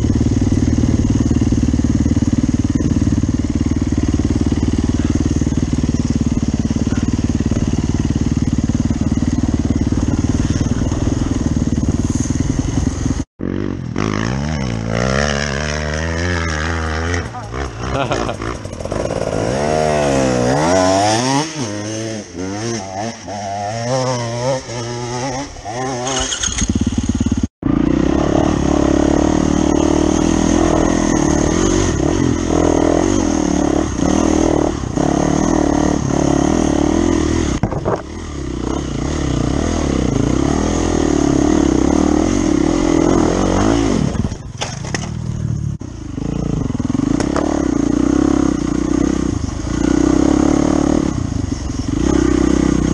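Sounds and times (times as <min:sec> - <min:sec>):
dirt bike engine revving: 0:00.0 - 0:52.9
dirt bike running steadily: 0:00.0 - 0:52.9
wind noise: 0:37.4 - 0:38.8.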